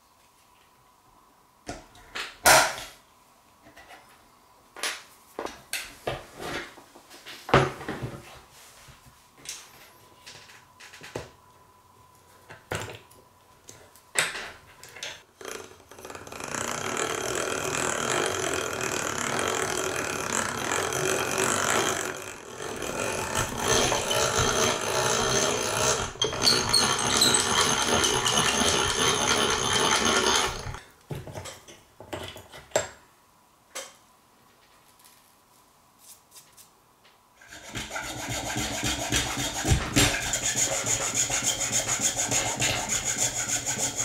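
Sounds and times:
drill bit grinding through wood: 15.4s - 30.8s.

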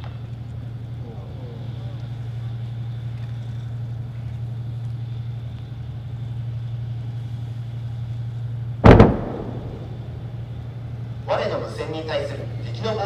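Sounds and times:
vehicle engines droning: 0.0s - 13.0s.

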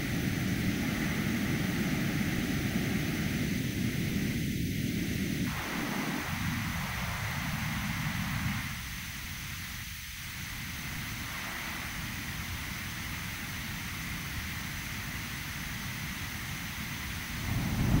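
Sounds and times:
synthesized jet engine drone: 0.0s - 8.8s, 16.2s - 18.0s.

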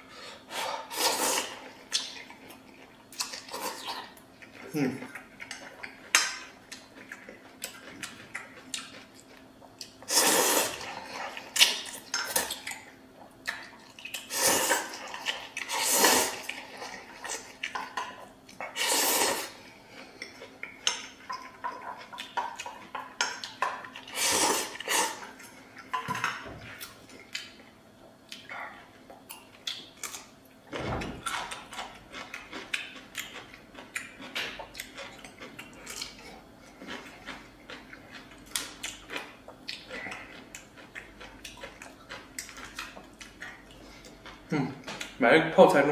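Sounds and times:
person slurping noodles: 0.5s - 1.6s, 10.1s - 11.0s, 14.3s - 15.0s, 15.6s - 16.5s, 18.7s - 19.6s, 24.1s - 25.3s
chewing: 1.2s - 45.2s.

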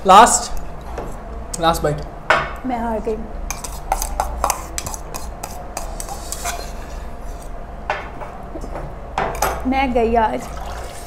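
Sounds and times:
metal spoon scraping noodle cup: 3.5s - 7.5s.

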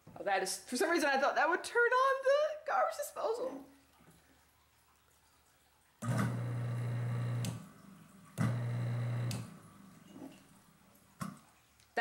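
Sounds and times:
garbage disposal humming: 6.0s - 11.3s.

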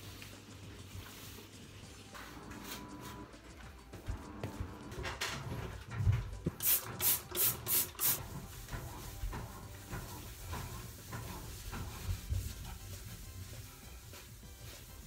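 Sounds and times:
spray bottle squirting: 6.6s - 8.2s
hand scrubbing a tub: 8.0s - 15.0s.

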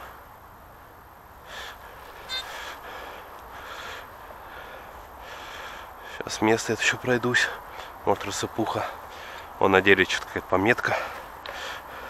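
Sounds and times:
man breathing close to microphone: 1.4s - 6.3s, 8.9s - 9.6s, 10.9s - 12.0s.

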